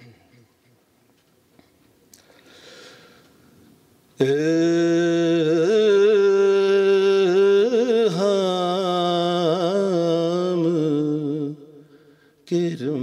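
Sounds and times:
man singing devotional song: 0:04.2 - 0:13.0.

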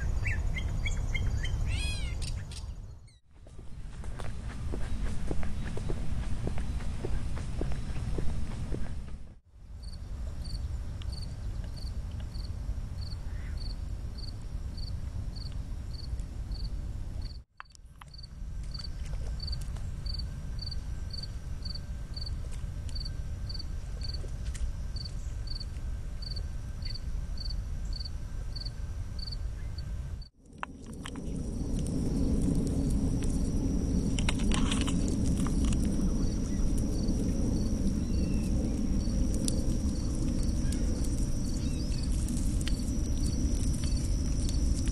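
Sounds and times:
low steady rumble: 0:18.2 - 0:44.9
insect chirping rhythmically: 0:22.9 - 0:24.2, 0:26.2 - 0:29.4, 0:31.0 - 0:44.9.

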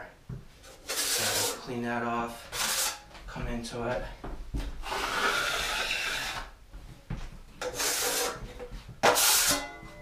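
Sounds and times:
trowel scraping wet compound: 0:00.8 - 0:01.7, 0:02.5 - 0:03.0, 0:07.6 - 0:08.4, 0:09.0 - 0:09.7.

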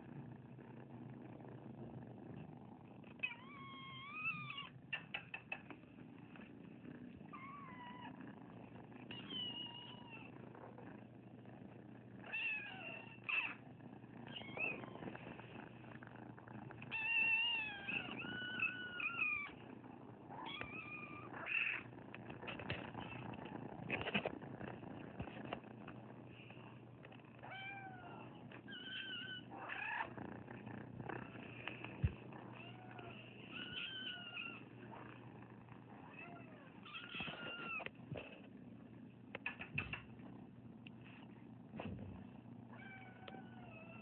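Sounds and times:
low purring: 0:00.0 - 0:44.0
kittens meowing: 0:03.2 - 0:05.6, 0:09.1 - 0:10.3, 0:14.3 - 0:15.2, 0:16.8 - 0:19.6, 0:20.3 - 0:21.9, 0:27.4 - 0:30.2, 0:32.0 - 0:34.7, 0:36.0 - 0:37.9, 0:42.7 - 0:44.0.

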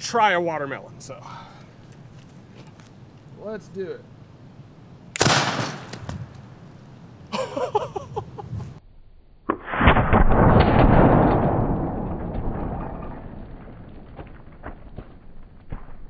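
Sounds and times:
potato cannon bang: 0:05.2 - 0:06.4, 0:09.5 - 0:16.0
long deep boom: 0:09.5 - 0:16.0.

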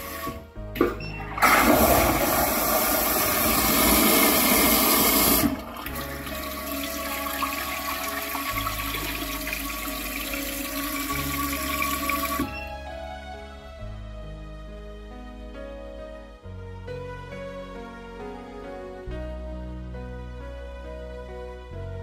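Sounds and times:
toilet flushing: 0:00.0 - 0:12.6
water running in toilet bowl: 0:00.0 - 0:12.6.

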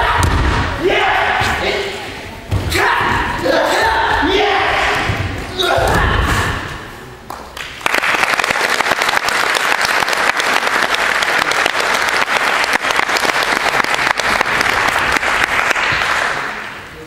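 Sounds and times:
audience applauding: 0:07.4 - 0:16.6.

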